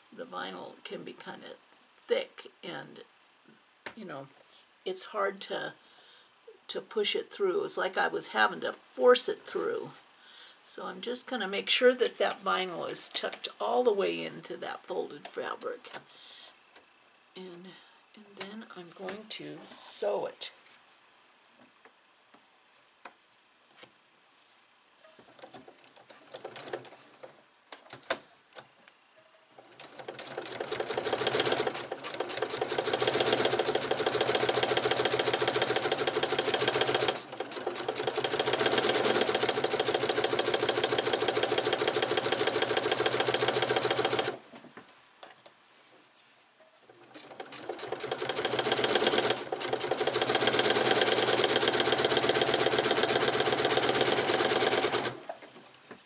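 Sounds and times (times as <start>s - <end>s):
sewing machine whirring: 25.4s - 28.2s, 29.6s - 44.4s, 46.9s - 55.4s.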